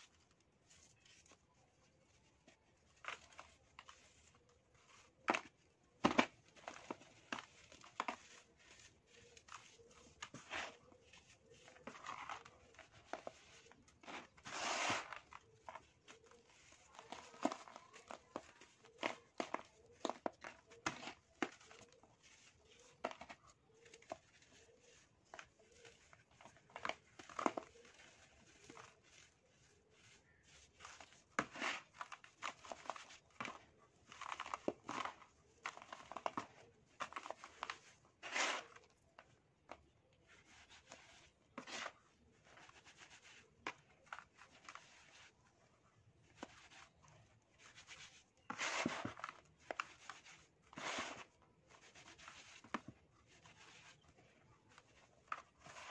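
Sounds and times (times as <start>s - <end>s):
sand sifting through fingers: 6.5s - 36.3s, 36.9s - 38.9s, 46.3s - 55.9s.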